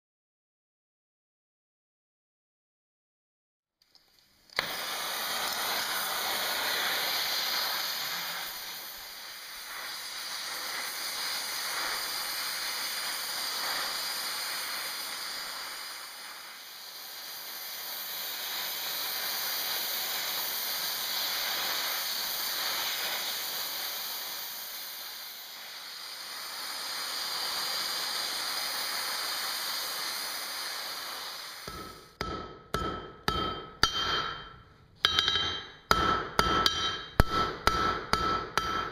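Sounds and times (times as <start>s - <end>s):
gas torch flame hissing: 3.8s - 34.3s
hammer blows on anvil: 31.7s - 38.9s.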